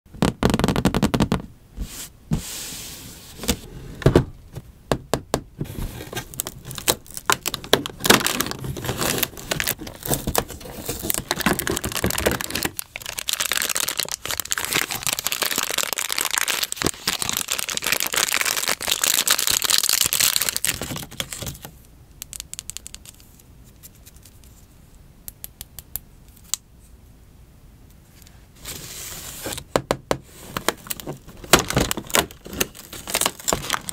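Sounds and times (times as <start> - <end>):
plastic wrapper crinkling: 6.0 - 24.6, 30.5 - 33.9.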